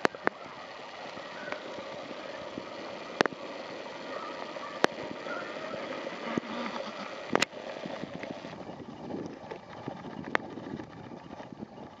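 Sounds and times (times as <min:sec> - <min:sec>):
sharp clicks: 0:00.0 - 0:01.8, 0:03.0 - 0:03.4, 0:04.3 - 0:05.2, 0:07.3 - 0:11.6.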